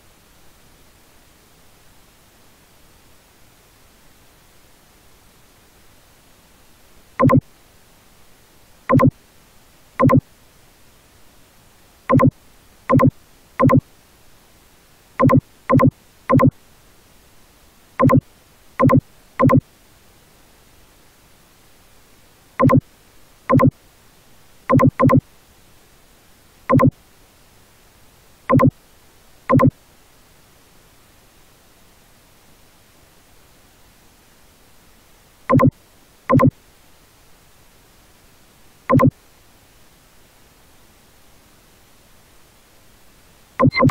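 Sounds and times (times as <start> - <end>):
faint steady hiss: 0.0 - 43.9
buzzy electronic beeps: 8.9 - 9.1, 12.9 - 13.8, 22.6 - 22.8, 43.6 - 43.9.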